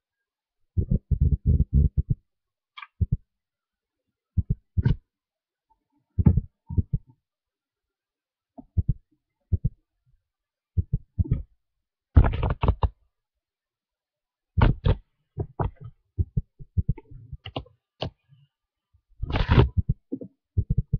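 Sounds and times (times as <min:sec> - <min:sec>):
soft thumps and knocks: 0:06.2 - 0:07.1.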